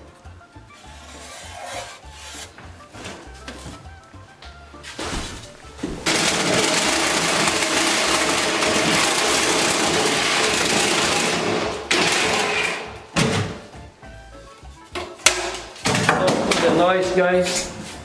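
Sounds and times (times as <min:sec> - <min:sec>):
reciprocating saw cutting metal: 0:06.1 - 0:12.9.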